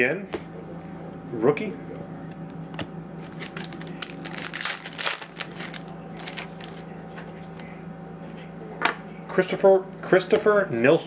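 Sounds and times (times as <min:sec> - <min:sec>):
foil wrapper crumpling: 0:03.2 - 0:06.9.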